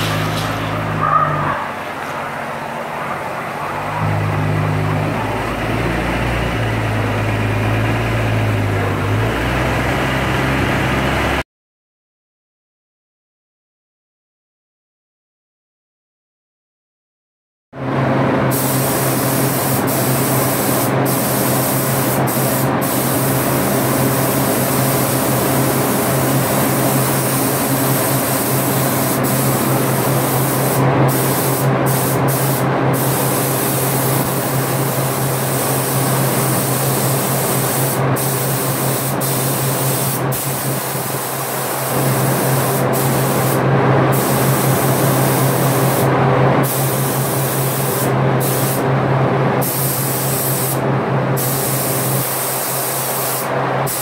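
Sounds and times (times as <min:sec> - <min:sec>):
paint spray gun hissing: 0:18.5 - 0:48.8, 0:49.6 - 0:50.8, 0:51.4 - 0:54.0.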